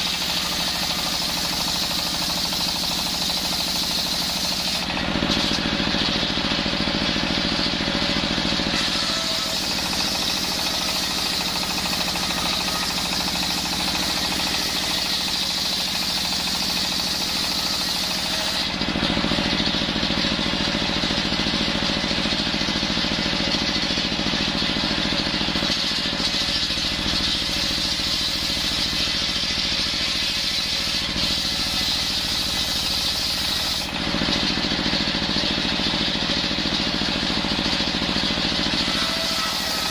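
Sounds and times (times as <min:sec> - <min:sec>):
circular saw cutting wood: 0:00.0 - 0:39.9.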